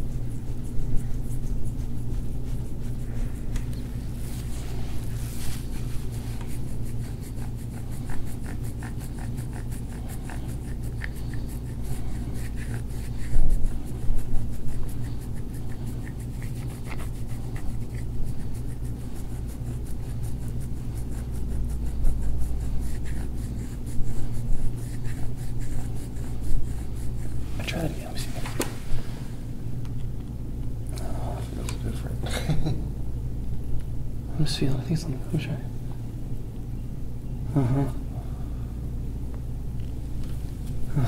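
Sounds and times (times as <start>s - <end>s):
scraping and rubbing on skin: 0.0s - 29.3s
steady low hum: 0.0s - 41.0s.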